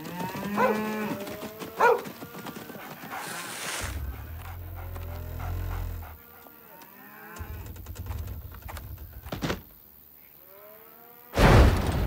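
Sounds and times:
cows mooing: 0.0 - 7.6.

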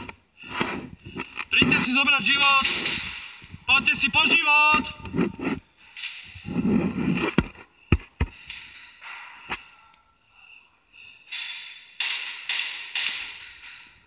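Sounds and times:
sharp airsoft gun cracks: 11.3 - 13.4.

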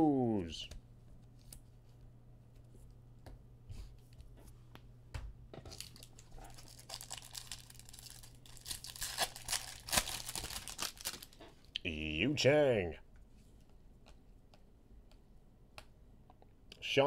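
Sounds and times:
foil wrapper crinkling and tearing: 5.6 - 11.4.

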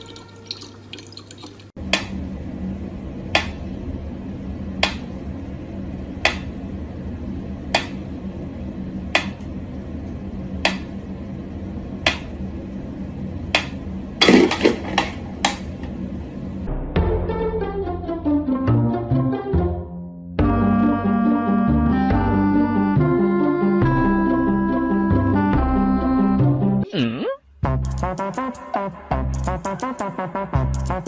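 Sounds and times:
tap water running into bottle: 0.0 - 1.8.

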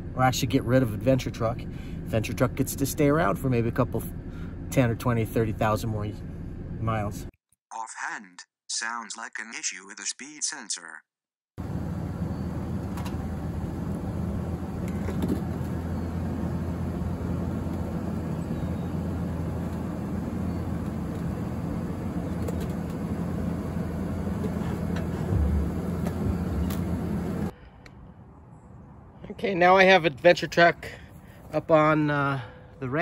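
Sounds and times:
pickup truck engine rumbling: 0.0 - 7.0, 11.6 - 27.5.

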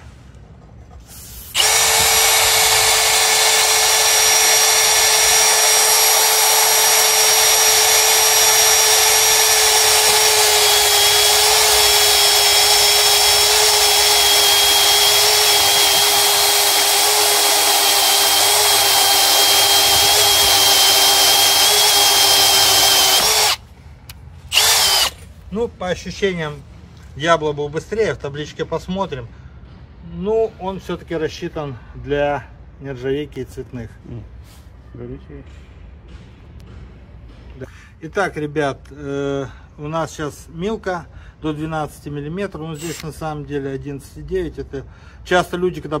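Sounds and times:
cordless drill cutting steel: 1.4 - 23.6, 24.5 - 25.2, 42.8 - 43.2.

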